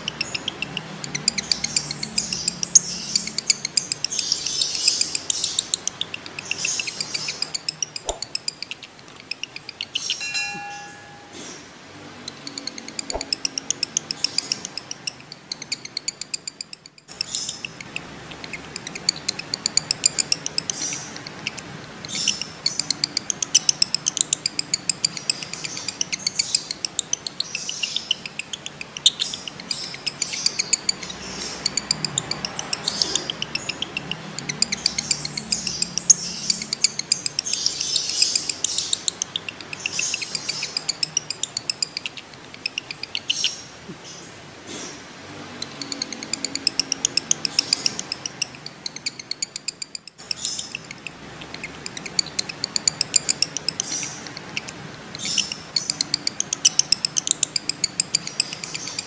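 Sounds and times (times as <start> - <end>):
lovebird chattering trill: 0.0 - 11.6, 12.2 - 44.2, 45.5 - 59.0.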